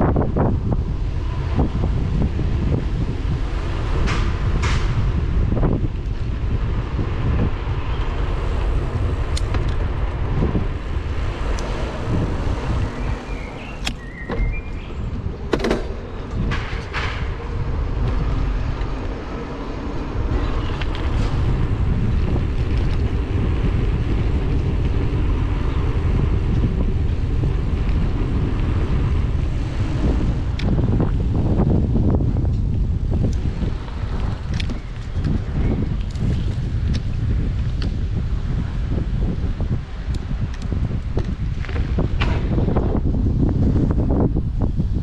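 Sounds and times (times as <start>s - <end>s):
bike tyres rumbling on asphalt: 0.0s - 45.0s
wind noise on microphone: 0.0s - 45.0s.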